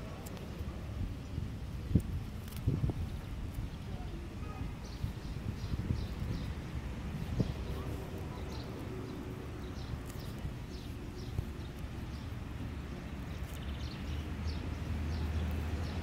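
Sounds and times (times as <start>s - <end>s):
sparrows chirping: 0.0s - 16.0s
steady low rumble: 0.0s - 16.0s
buzzy bird chatter: 4.8s - 16.0s.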